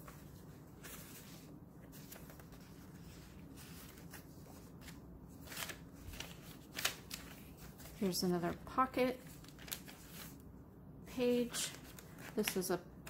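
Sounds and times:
paper rustling and page turning: 0:00.0 - 0:10.4, 0:11.3 - 0:12.8.

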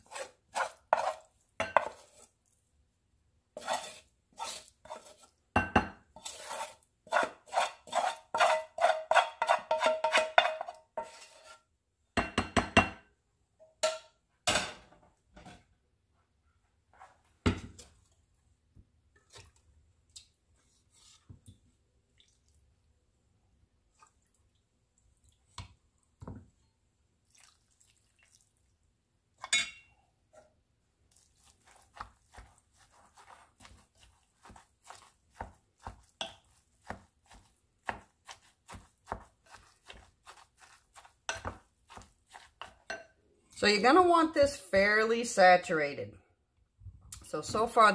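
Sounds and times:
utensil mixing in a bowl: 0:00.0 - 0:02.7, 0:03.5 - 0:11.7, 0:19.1 - 0:22.6, 0:27.2 - 0:28.8, 0:31.0 - 0:44.9.

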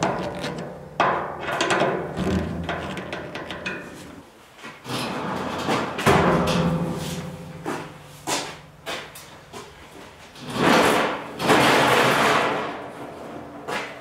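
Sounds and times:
tools knocking on plastic pipe: 0:00.0 - 0:04.1.

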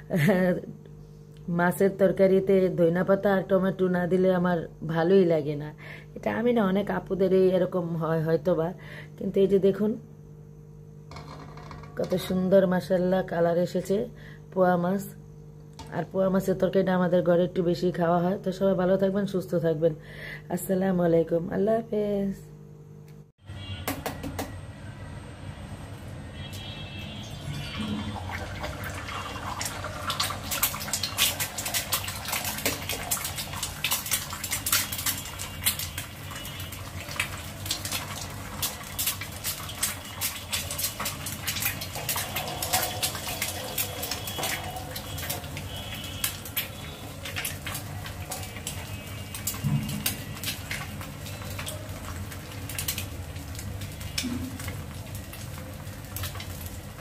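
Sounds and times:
eggs sizzling in hot oil: 0:26.4 - 0:57.0
oil crackling and spitting: 0:26.5 - 0:57.0.

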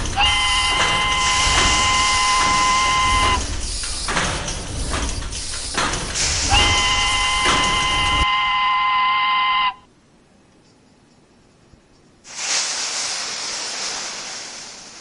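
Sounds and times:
hissing steam: 0:00.0 - 0:08.1, 0:12.3 - 0:15.0
steam locomotive whistle: 0:00.2 - 0:03.4, 0:06.3 - 0:09.9.

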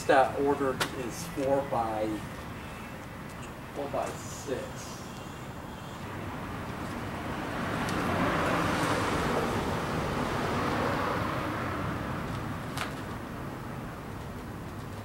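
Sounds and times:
car driving past: 0:06.2 - 0:12.6.

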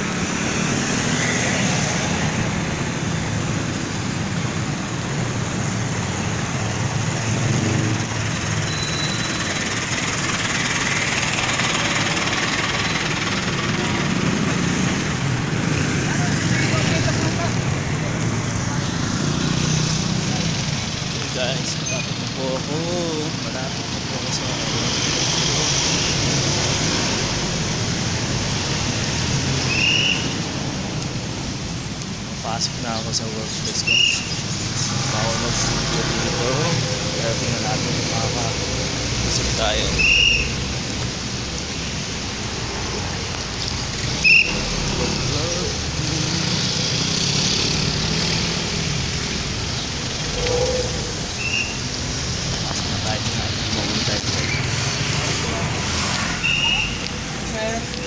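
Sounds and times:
street traffic rushing: 0:00.0 - 0:58.0
short high squeak: 0:08.7 - 0:09.5.

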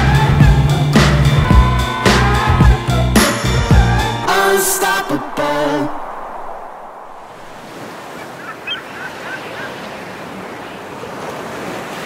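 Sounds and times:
waves rushing: 0:00.8 - 0:12.0
bird calling: 0:07.7 - 0:11.0.

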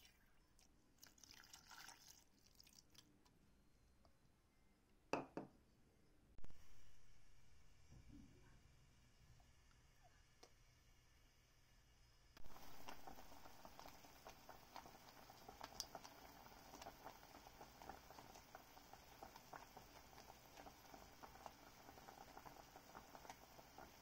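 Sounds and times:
liquid simmering with popping bubbles: 0:12.4 - 0:24.0.

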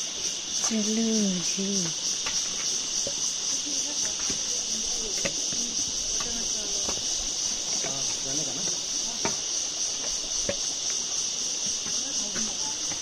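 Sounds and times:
insects shrilling: 0:00.0 - 0:13.0.

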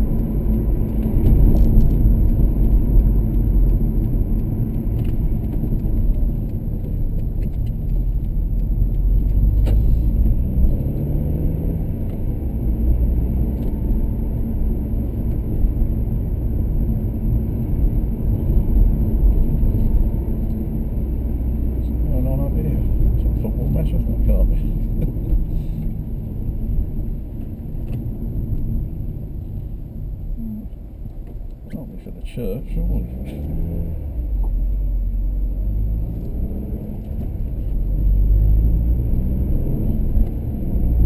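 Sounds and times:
car engine and tyre rumble: 0:00.0 - 0:41.0.

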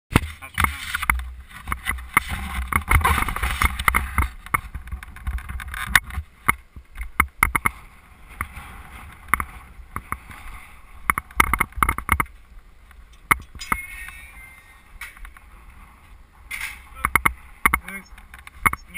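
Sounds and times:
sharp knocks and clicks: 0:11.1 - 0:12.4, 0:13.1 - 0:13.8, 0:16.5 - 0:18.9.

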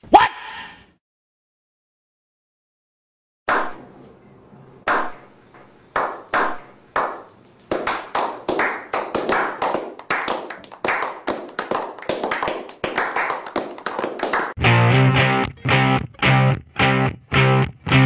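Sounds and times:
men slow clapping: 0:06.0 - 0:14.6.

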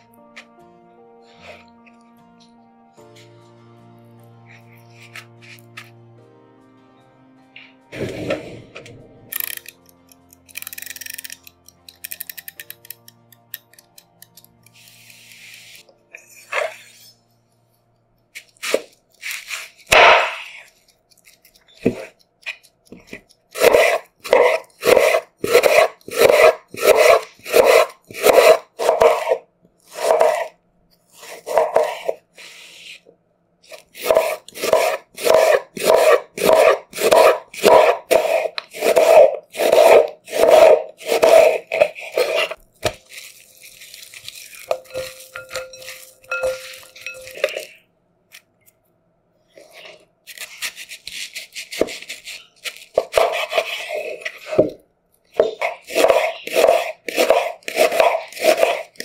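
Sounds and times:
utensil scraping through food: 0:18.4 - 0:33.0, 0:33.7 - 0:48.4, 0:49.5 - 0:54.6, 0:55.4 - 0:59.0.

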